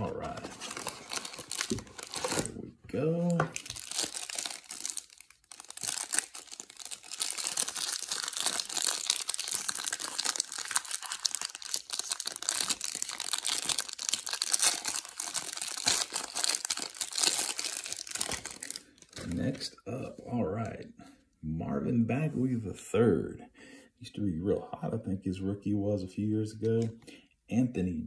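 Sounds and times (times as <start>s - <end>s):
plastic wrapper crinkling: 0.0s - 19.7s.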